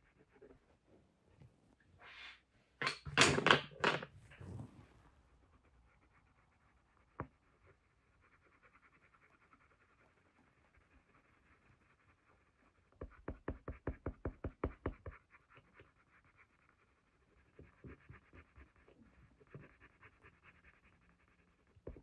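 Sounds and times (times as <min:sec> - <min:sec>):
pencil scratching on paper: 0:05.4 - 0:22.0.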